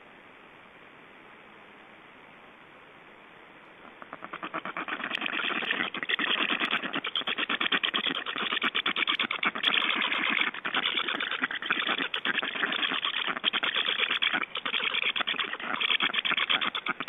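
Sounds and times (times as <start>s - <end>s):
stork nestlings rasping rattle: 4.0s - 17.0s.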